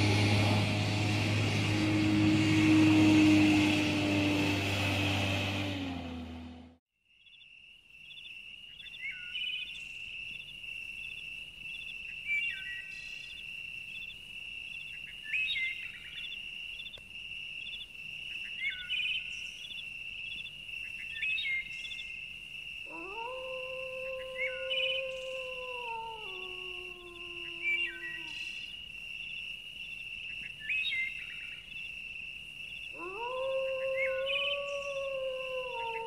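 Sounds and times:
dog howling: 0.0s - 6.2s, 22.9s - 28.4s, 33.0s - 36.0s
low hum: 0.0s - 6.8s.

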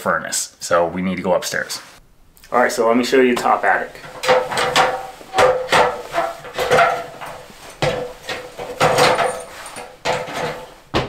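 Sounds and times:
footsteps on metal ladder: 3.3s - 11.0s.

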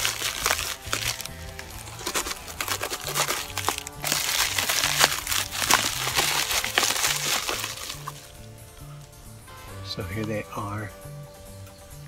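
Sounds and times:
plastic packaging crinkling and tearing: 0.0s - 8.4s.

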